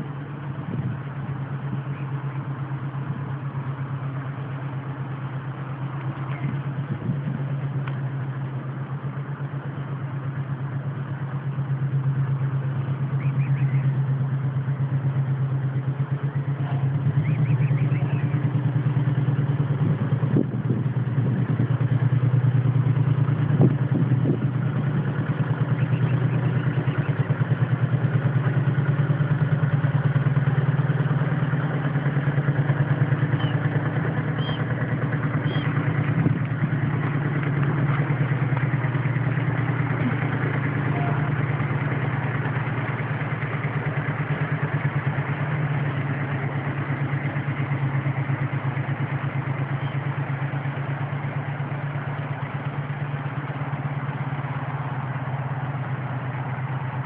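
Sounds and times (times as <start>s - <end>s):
engine idling: 0.0s - 57.0s
faint high chirps: 34.4s - 34.7s, 35.4s - 35.8s.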